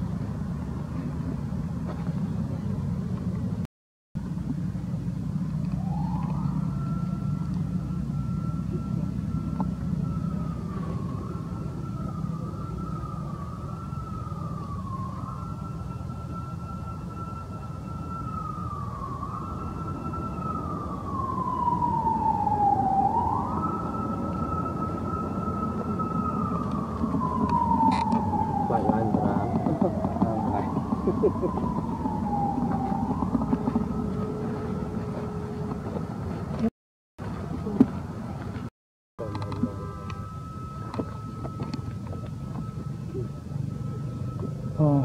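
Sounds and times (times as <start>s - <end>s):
distant siren wailing: 4.2s - 45.0s
low rumble: 17.8s - 45.0s.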